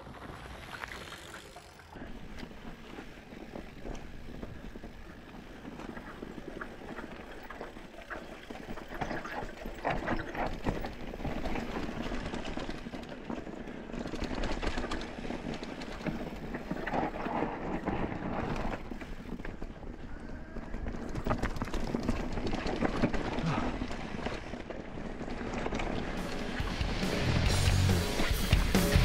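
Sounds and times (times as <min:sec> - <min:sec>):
bike rattling: 0:00.0 - 0:29.0.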